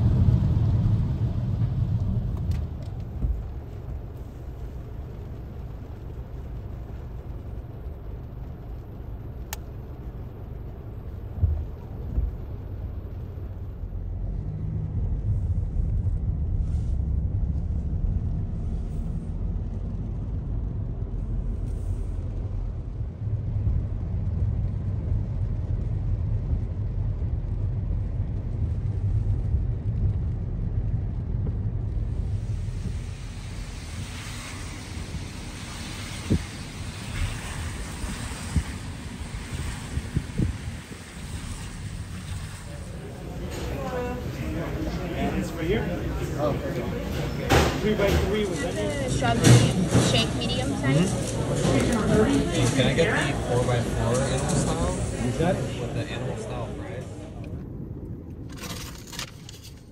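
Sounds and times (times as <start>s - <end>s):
road traffic rumble: 0.0s - 59.9s.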